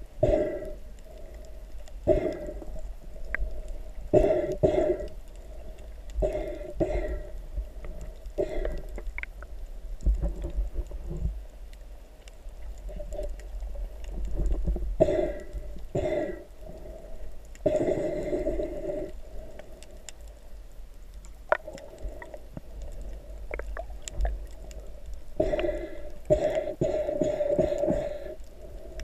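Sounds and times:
snorkel breathing and bubbles: 0.0 - 29.0
underwater rumble: 0.0 - 29.0
small clicks: 7.8 - 14.8, 21.0 - 25.7.

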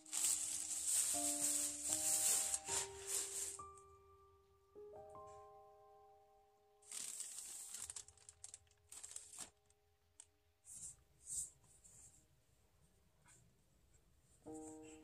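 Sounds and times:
cardboard box rustling: 0.0 - 3.6
paper bag rustling: 0.0 - 3.8, 6.9 - 9.7
faint background music: 0.0 - 9.8, 13.7 - 15.0.

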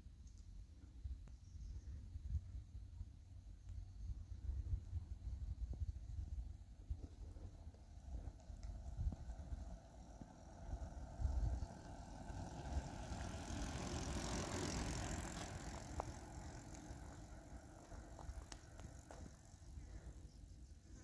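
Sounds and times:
bicycle tyre hiss on asphalt: 3.4 - 21.0
wind buffeting microphone: 4.4 - 20.2.

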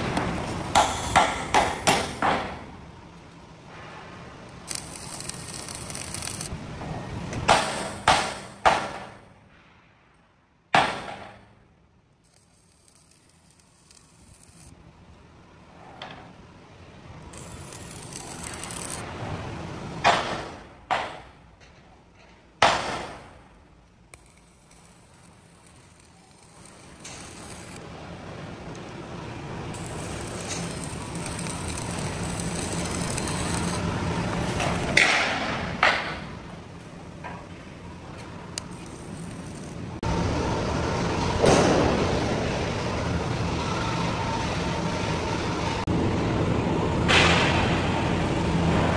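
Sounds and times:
loud machinery noise: 24.1 - 48.9.

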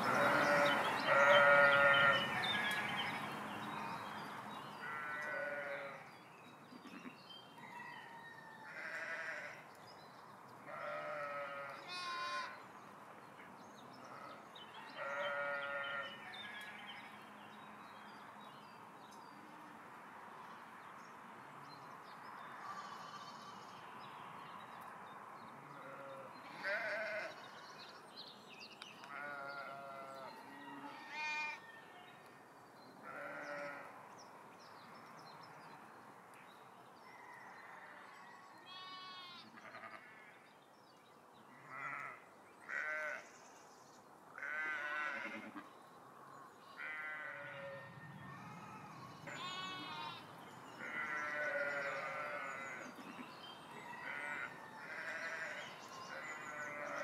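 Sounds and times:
sheep bleating: 0.1 - 2.8, 4.8 - 6.0, 8.7 - 9.5, 10.7 - 12.5, 15.0 - 16.1, 25.8 - 27.4, 29.1 - 31.6, 33.0 - 33.9, 38.7 - 40.3, 41.6 - 43.2, 44.4 - 45.6, 46.8 - 48.0, 49.2 - 50.2, 50.8 - 53.2, 54.0 - 57.0.

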